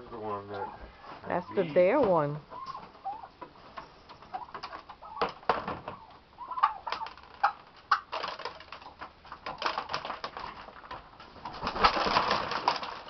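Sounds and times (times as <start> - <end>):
turkey soft calls: 0.5 - 1.8, 2.4 - 5.3, 5.9 - 8.0.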